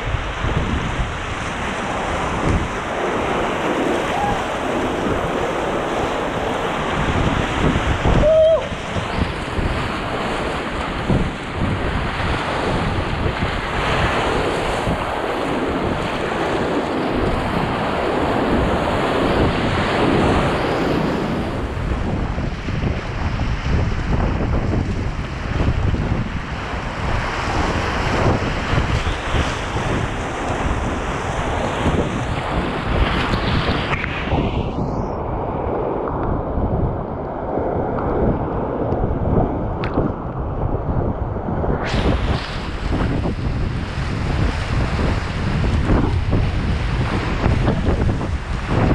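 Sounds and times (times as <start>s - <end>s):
rapids rushing and splashing: 0.0s - 22.2s, 41.8s - 48.9s
wind noise on microphone: 0.0s - 48.9s.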